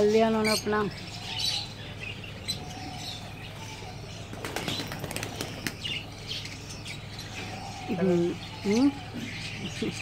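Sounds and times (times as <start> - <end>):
pigeon wings flapping: 4.3 - 5.8.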